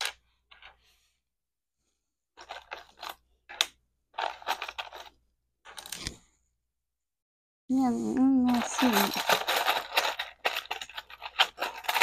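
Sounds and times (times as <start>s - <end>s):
plastic pieces clattering: 2.4s - 6.1s, 8.4s - 12.0s.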